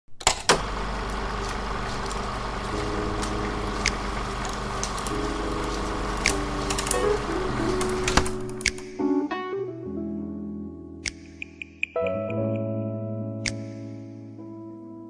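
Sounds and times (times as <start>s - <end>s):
film projector whirring: 0.2s - 8.8s
sharp clicks: 6.2s - 9.0s, 11.1s - 12.7s.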